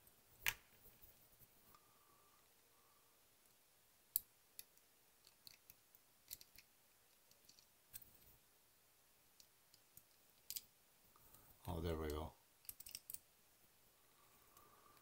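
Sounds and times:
plastic model parts clicking: 0:04.1 - 0:08.1, 0:12.6 - 0:13.2.

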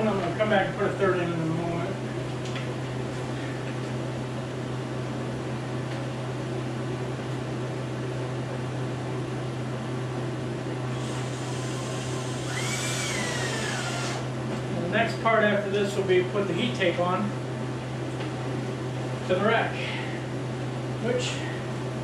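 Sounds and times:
steady low hum: 0:00.0 - 0:22.0
cordless drill driving screw: 0:11.0 - 0:14.3.

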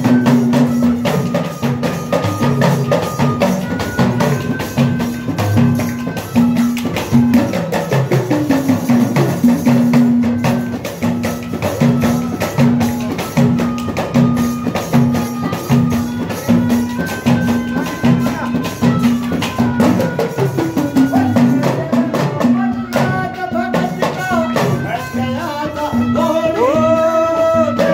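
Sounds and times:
wooden clappers with jingles: 0:00.0 - 0:26.0
hand drum beat: 0:00.0 - 0:27.9.

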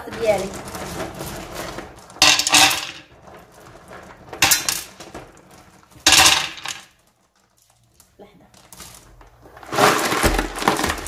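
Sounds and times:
stones clattering into metal pot: 0:00.0 - 0:03.5, 0:04.1 - 0:07.0, 0:09.6 - 0:11.0.

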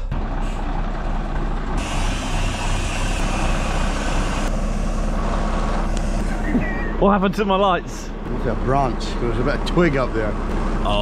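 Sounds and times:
diesel truck engine running: 0:00.0 - 0:11.0
loud hiss: 0:01.8 - 0:04.5.

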